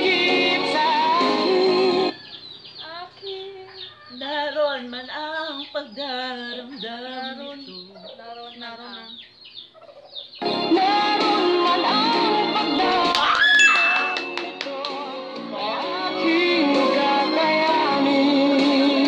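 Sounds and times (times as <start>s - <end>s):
person singing unaccompanied: 0.0s - 2.2s, 2.8s - 9.3s, 10.4s - 19.0s
recorded music: 0.0s - 2.2s, 10.4s - 19.0s.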